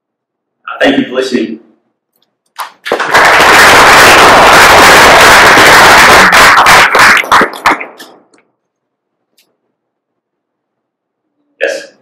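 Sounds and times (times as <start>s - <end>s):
audience applauding: 2.6s - 8.2s.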